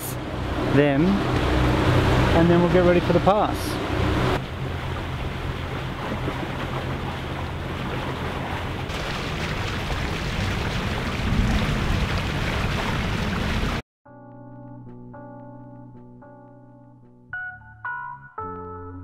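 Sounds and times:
boat engine humming: 0.0s - 13.8s
water rushing past hulls: 0.0s - 13.8s
wind buffeting microphone: 3.8s - 13.8s.

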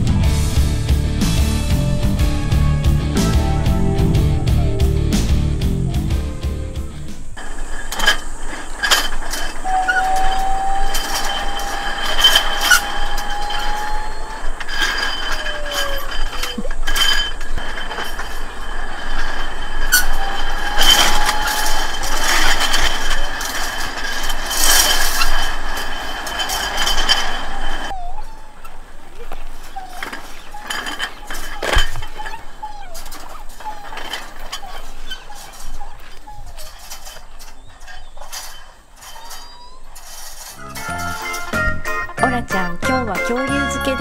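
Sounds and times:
high whine: 0.0s - 27.9s
rollers clattering and clicking: 0.0s - 44.0s
drawn-out squeals: 1.3s - 42.4s.

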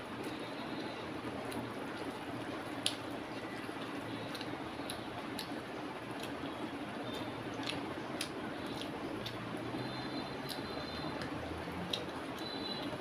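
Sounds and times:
fingers squishing wet rice: 2.8s - 12.5s.

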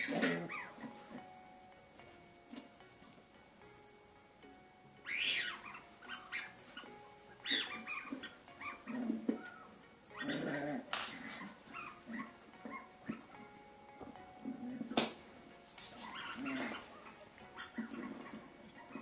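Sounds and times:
squeaky toy squeaks: 5.1s - 12.8s.

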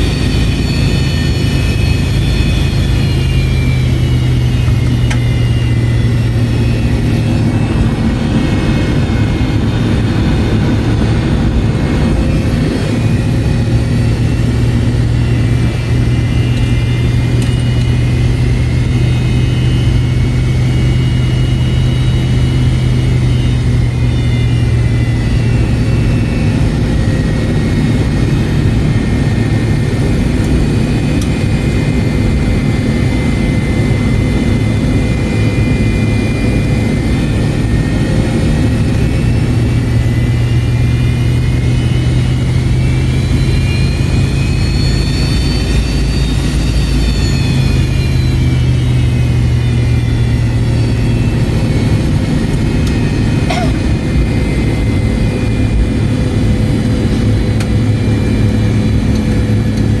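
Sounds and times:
jet engine high whine: 0.0s - 60.0s
jet engine low drone: 0.0s - 60.0s.

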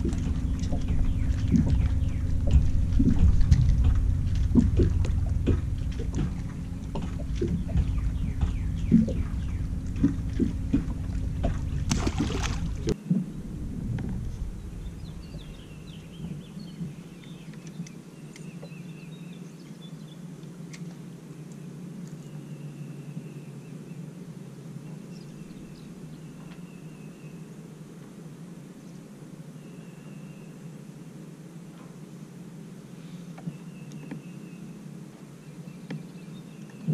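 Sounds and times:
wind rumbling on microphone: 0.0s - 19.5s, 35.2s - 36.9s
birds calling: 0.0s - 20.1s, 33.0s - 36.9s
steady low hum: 0.0s - 36.9s.

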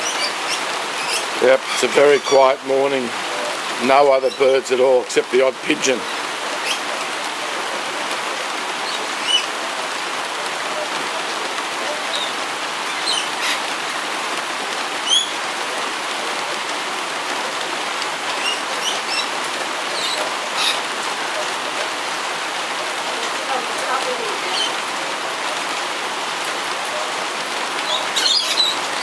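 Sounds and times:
parrots chirping: 0.0s - 2.5s, 8.8s - 9.5s, 12.1s - 13.7s, 15.0s - 15.4s, 18.3s - 19.3s, 19.9s - 20.9s, 24.5s - 24.8s, 27.8s - 29.0s
heavy rain falling: 0.0s - 29.0s.

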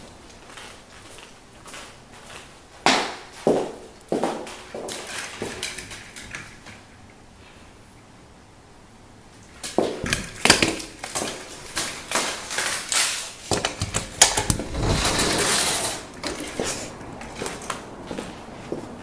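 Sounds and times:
footsteps on concrete: 0.3s - 5.5s
rushing scrape: 14.3s - 17.0s.

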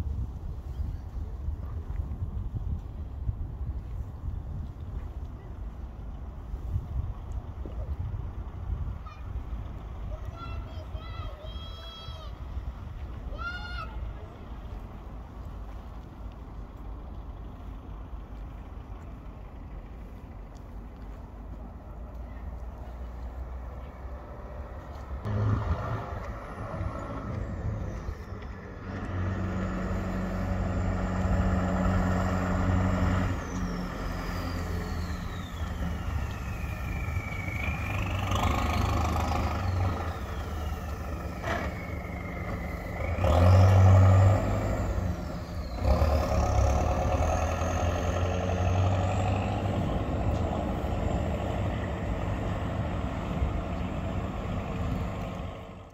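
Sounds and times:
diesel truck engine revving: 23.2s - 55.9s.

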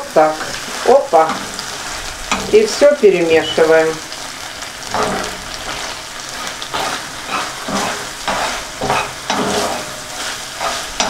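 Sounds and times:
food sizzling in hot oil: 0.0s - 11.0s
utensil scraping a pan: 4.8s - 11.0s.

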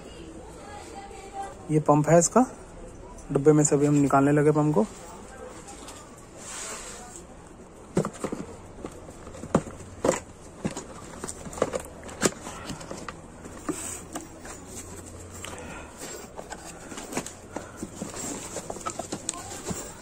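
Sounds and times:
cardboard and bubble wrap crinkling: 7.9s - 20.0s.

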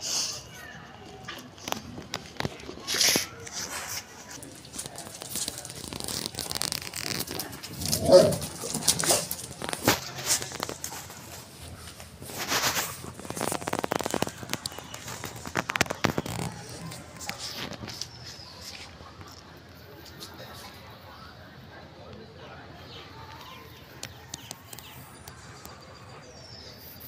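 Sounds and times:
dogs scuffling: 2.0s - 19.4s
dog vocalization: 7.7s - 9.5s.

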